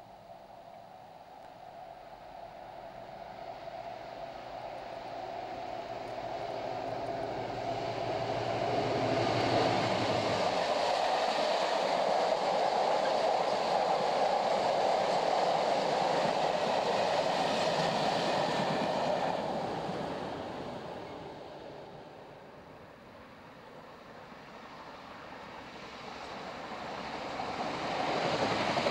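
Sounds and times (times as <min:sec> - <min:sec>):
diesel locomotive engine humming: 0:00.0 - 0:28.9
wagons rumbling and rattling on rails: 0:02.0 - 0:22.6.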